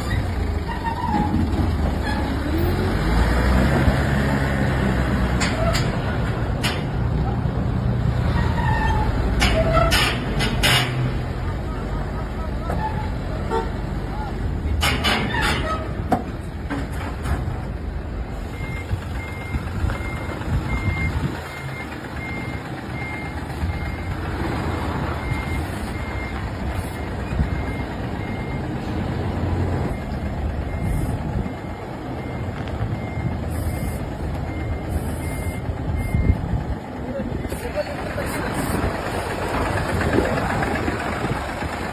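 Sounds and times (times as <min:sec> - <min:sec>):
truck diesel engine running: 0:00.0 - 0:41.9
reversing alarm beeps: 0:18.5 - 0:24.2, 0:25.2 - 0:28.8, 0:29.8 - 0:36.4.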